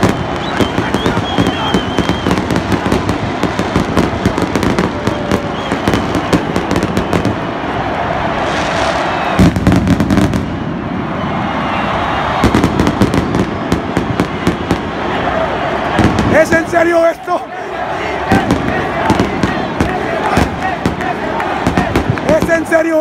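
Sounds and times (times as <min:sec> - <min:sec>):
firecrackers banging: 0:00.0 - 0:07.5, 0:08.4 - 0:10.8, 0:12.3 - 0:15.1, 0:15.9 - 0:16.6, 0:18.2 - 0:22.7
stadium crowd noise: 0:00.0 - 0:23.0.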